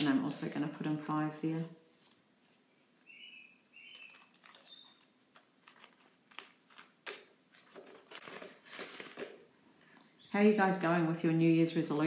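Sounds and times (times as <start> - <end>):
faint high chirps: 3.0 - 5.1
banknotes and plastic pages rustling: 3.9 - 10.0.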